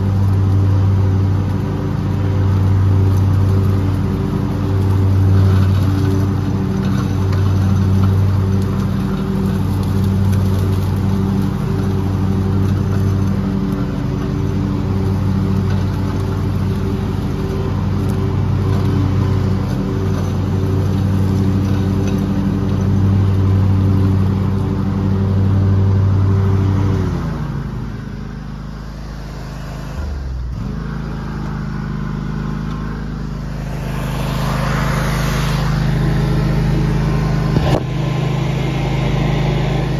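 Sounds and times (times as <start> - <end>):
engine running with pulsing hum: 0.0 - 39.9.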